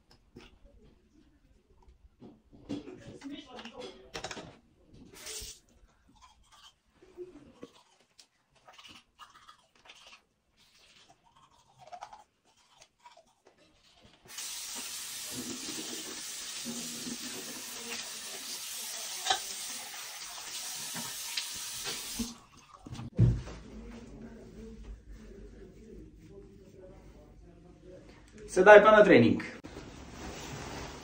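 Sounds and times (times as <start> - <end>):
toothbrush scrubbing teeth: 5.2 - 22.9
tap water running into sink: 14.3 - 23.1.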